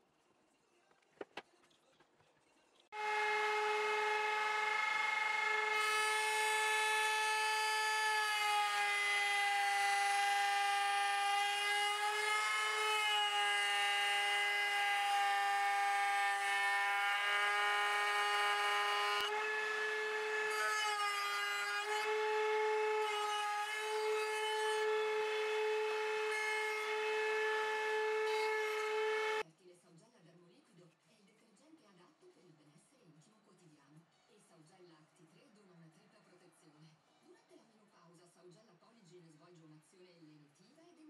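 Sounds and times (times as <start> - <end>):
router whining: 3.0 - 29.4
wood being cut: 3.0 - 29.4.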